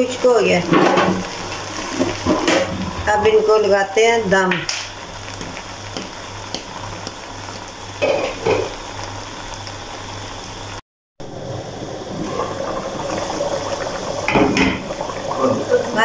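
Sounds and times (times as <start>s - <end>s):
broth boiling in pot: 0.0s - 16.0s
faint sizzle: 0.0s - 16.0s.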